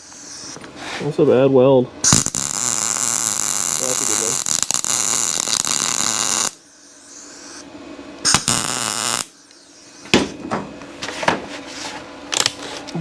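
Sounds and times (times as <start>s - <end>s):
welding arc crackling: 2.0s - 6.6s, 8.2s - 9.5s.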